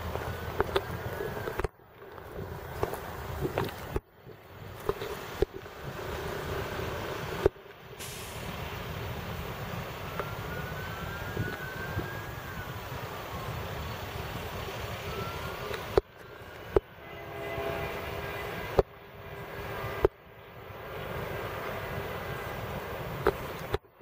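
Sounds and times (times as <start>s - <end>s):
faint whines: 9.3s - 24.0s.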